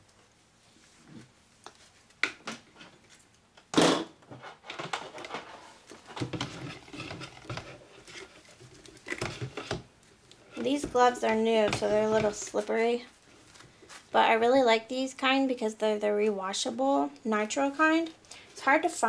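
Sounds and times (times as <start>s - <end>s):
rubber gloves rubbing: 4.3s - 14.4s.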